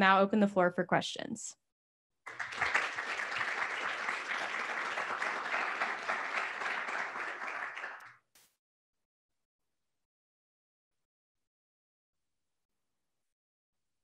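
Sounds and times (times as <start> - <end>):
audience applauding: 2.3 - 8.3.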